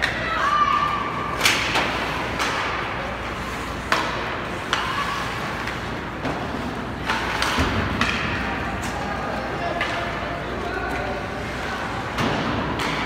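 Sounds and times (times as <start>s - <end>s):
arena background hum: 0.0s - 13.0s
puck striking boards: 1.4s - 3.0s, 3.8s - 8.9s, 12.1s - 13.0s
hockey sticks clacking on puck: 1.4s - 11.3s, 12.1s - 13.0s.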